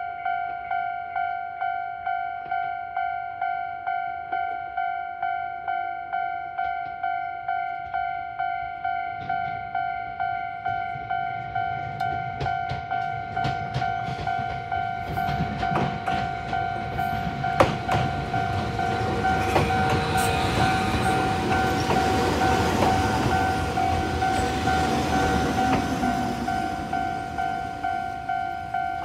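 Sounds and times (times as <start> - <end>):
train wheel clicks: 6.6 - 29.0
electric train rumble: 7.8 - 29.0.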